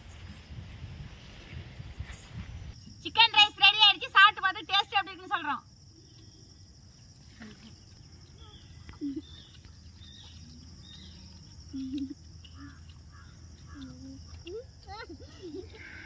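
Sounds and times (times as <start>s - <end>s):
high insect drone: 0.0s - 16.0s
faint bird chirps: 7.3s - 14.5s.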